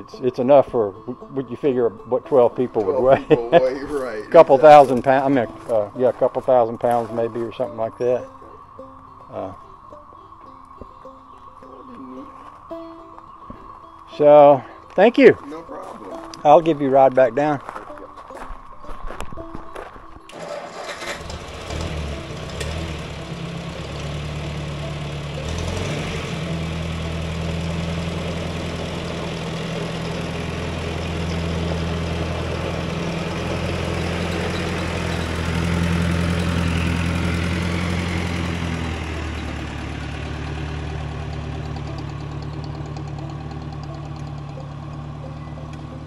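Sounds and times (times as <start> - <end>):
tractor engine running: 0.0 - 11.9, 20.2 - 46.0.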